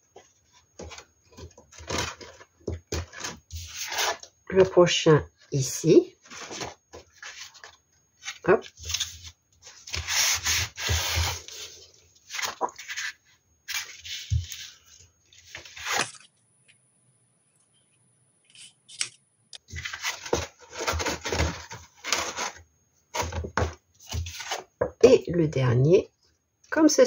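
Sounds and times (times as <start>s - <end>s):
cardstock rustling and scraping: 0.1s - 4.8s, 6.2s - 16.2s, 19.6s - 24.8s.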